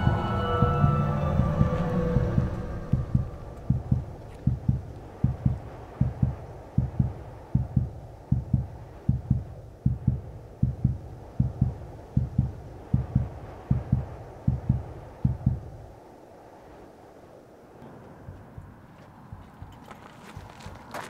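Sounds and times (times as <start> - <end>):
heartbeat thumps: 0.0 - 15.7, 18.2 - 20.8
faint low drone: 0.0 - 15.9.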